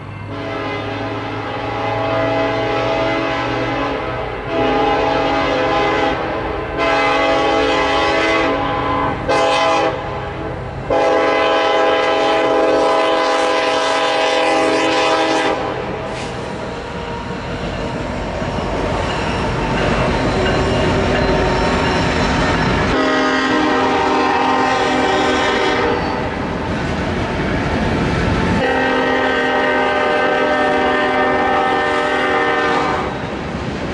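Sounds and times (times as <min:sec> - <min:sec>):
train wheels rumbling on rails: 0:00.0 - 0:33.9
locomotive air horn blasts: 0:00.3 - 0:16.3, 0:22.9 - 0:26.4, 0:28.6 - 0:33.2.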